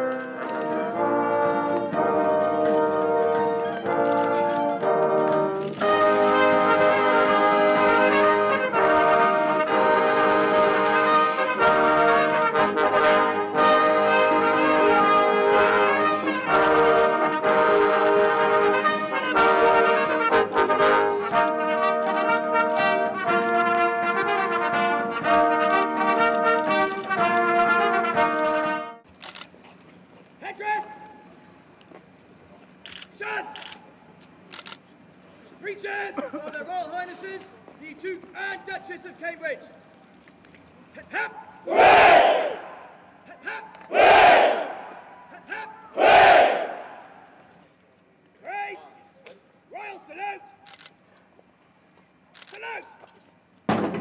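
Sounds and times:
brass band playing: 0:00.0 - 0:29.1, 0:46.0 - 0:47.1.

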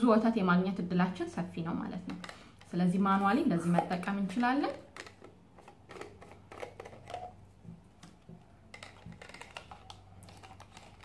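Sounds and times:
plastic parts clicking: 0:04.4 - 0:07.3, 0:08.0 - 0:11.0.

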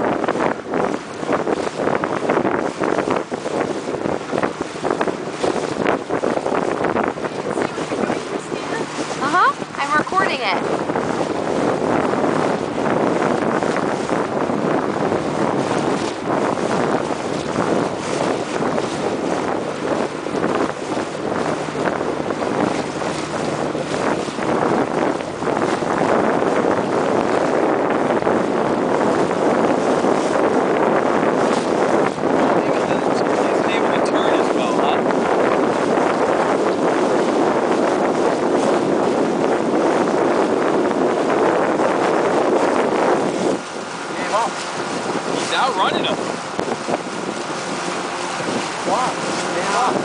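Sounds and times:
wind buffeting microphone: 0:00.0 - 0:50.0.

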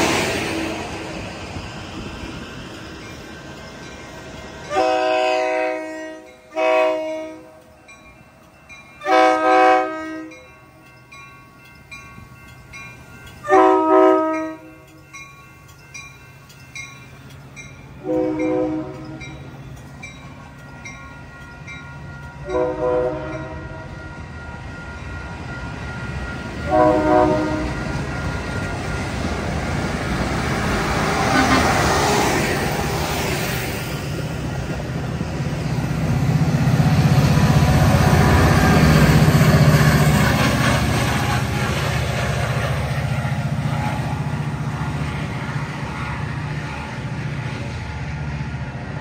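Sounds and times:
rumble of passing train: 0:00.0 - 0:49.0
train horn blasts: 0:04.7 - 0:07.7, 0:09.0 - 0:10.5, 0:13.4 - 0:14.8, 0:18.0 - 0:19.4, 0:22.4 - 0:24.0, 0:26.6 - 0:27.8, 0:31.2 - 0:32.2.

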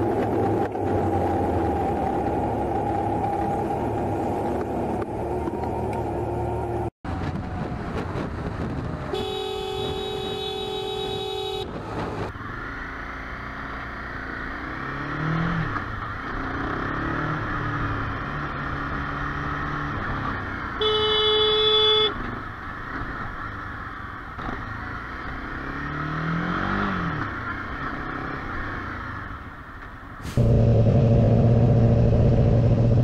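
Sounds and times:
road and wind noise: 0:00.0 - 0:33.0
motorcycle engine: 0:08.9 - 0:33.0
vehicle horn blast: 0:09.1 - 0:11.8, 0:20.8 - 0:22.2.

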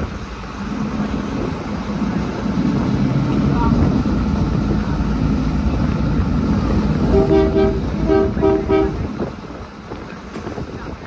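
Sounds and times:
heavy vehicle engine running: 0:00.0 - 0:11.0
vehicle horn tooting: 0:07.1 - 0:09.1.

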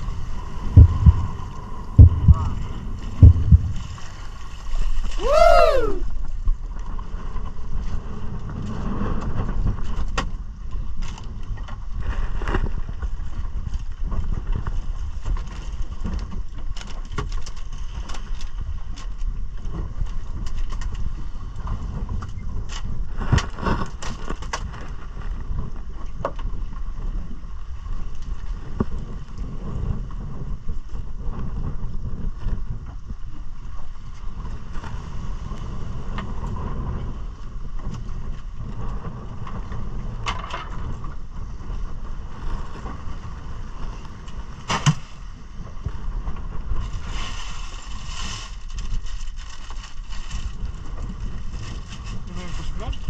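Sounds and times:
low rumble of wind and sea: 0:00.0 - 0:53.0
sharp knocks: 0:00.7 - 0:04.0
plastic bag of ice crinkling: 0:47.3 - 0:50.8.

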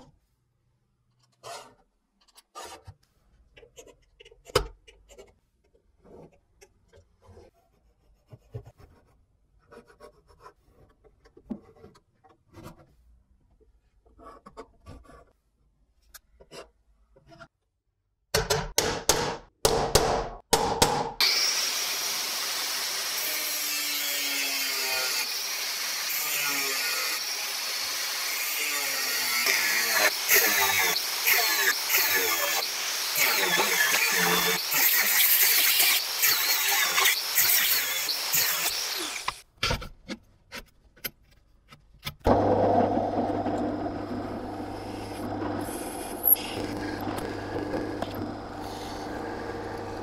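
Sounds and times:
angle grinder cutting steel: 0:21.2 - 0:39.4, 0:42.4 - 0:50.0.

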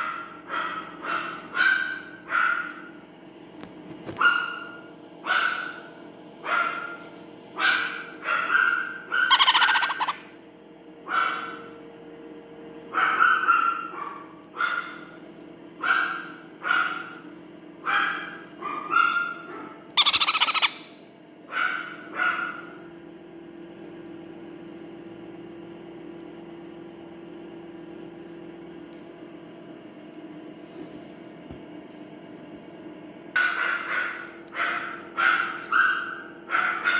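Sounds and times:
parrot chick squawking: 0:07.7 - 0:10.4, 0:18.2 - 0:21.0.

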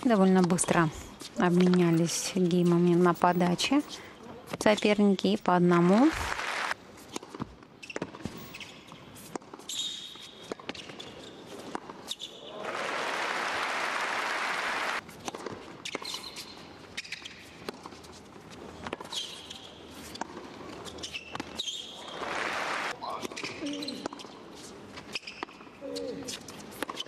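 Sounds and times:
crowd applause: 0:06.1 - 0:06.8, 0:12.5 - 0:15.0, 0:22.2 - 0:22.9
shoe squeaks: 0:07.8 - 0:12.5, 0:15.8 - 0:18.2, 0:19.0 - 0:22.4, 0:23.1 - 0:27.0.

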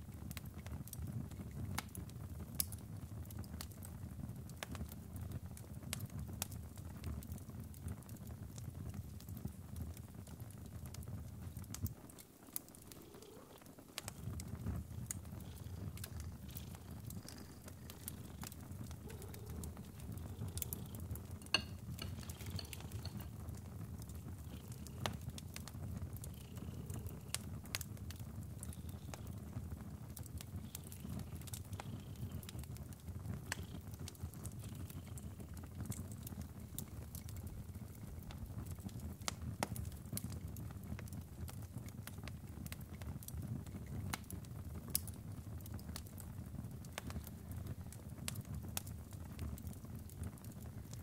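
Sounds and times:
wood fire crackling: 0:00.0 - 0:51.0.

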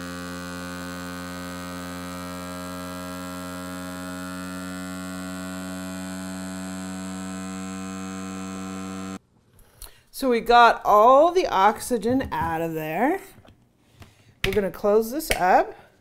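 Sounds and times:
vacuum pump motor hum: 0:00.0 - 0:09.2.

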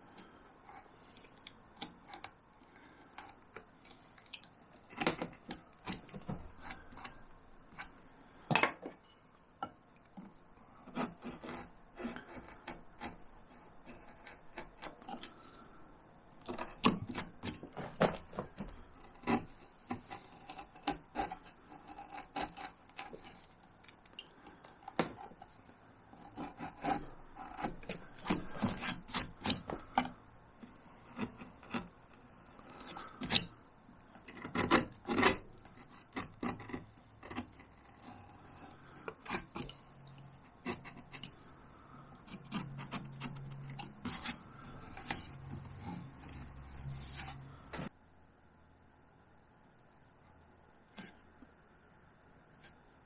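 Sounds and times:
carving tools cutting bark: 0:18.7 - 0:23.5, 0:26.2 - 0:33.6, 0:34.2 - 0:41.6, 0:42.2 - 0:47.5.

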